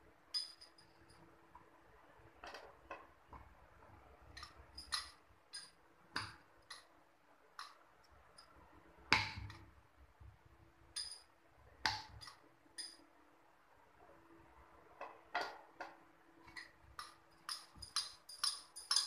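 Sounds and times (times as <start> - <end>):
bangles clinking: 0.3 - 1.2, 11.0 - 11.3, 16.6 - 19.0.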